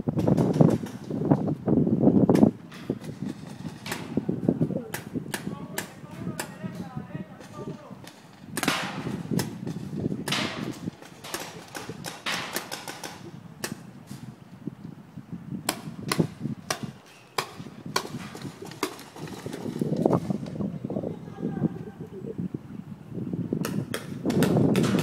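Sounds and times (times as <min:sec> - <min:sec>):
paintball markers popping: 0:10.3 - 0:13.8.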